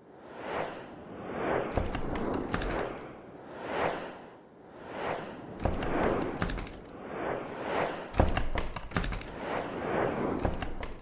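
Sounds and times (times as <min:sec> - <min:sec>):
whooshes: 0:00.2 - 0:11.0
sharp clicks: 0:01.7 - 0:03.0, 0:05.6 - 0:06.9, 0:08.2 - 0:09.4, 0:10.4 - 0:11.0.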